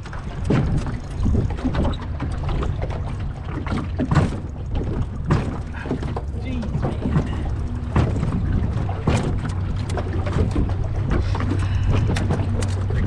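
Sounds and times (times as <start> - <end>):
wind noise on microphone: 0.0 - 3.0
boat motor humming: 0.0 - 13.0
water wash: 0.0 - 13.0
sharp knocks: 4.0 - 10.7.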